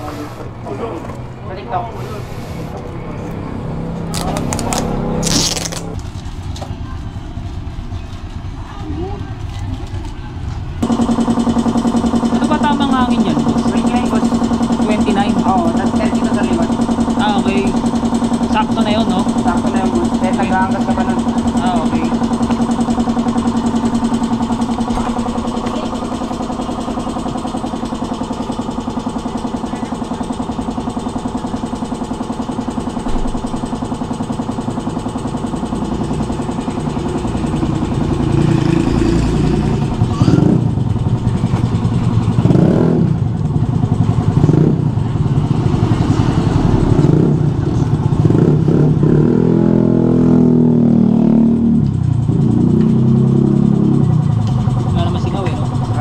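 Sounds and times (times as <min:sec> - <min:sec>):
motorcycle engines revving: 0:00.0 - 0:33.0, 0:33.9 - 0:56.0.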